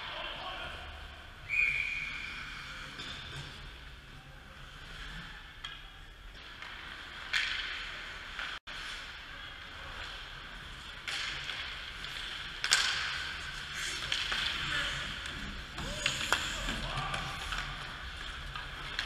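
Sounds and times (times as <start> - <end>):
hockey sticks cracking puck: 6.4 - 9.2, 9.8 - 19.0.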